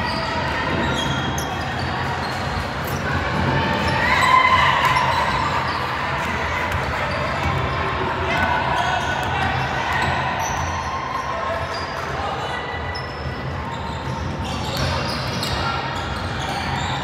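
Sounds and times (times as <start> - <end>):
echoing gym background noise: 0.0 - 17.0
basketball bouncing on court: 6.6 - 10.8.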